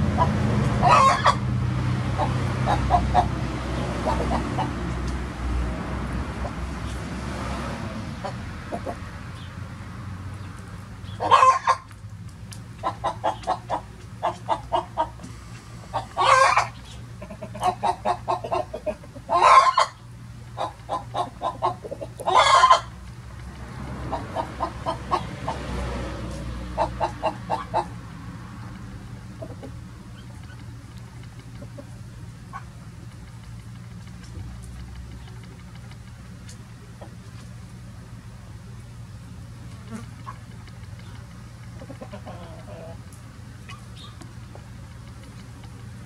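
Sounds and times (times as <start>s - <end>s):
chickens clucking: 0.1s - 1.4s, 2.0s - 5.2s, 8.2s - 9.5s, 11.1s - 11.9s, 12.6s - 37.8s, 39.5s - 46.0s
loud chicken call: 0.8s - 1.4s, 15.9s - 16.7s.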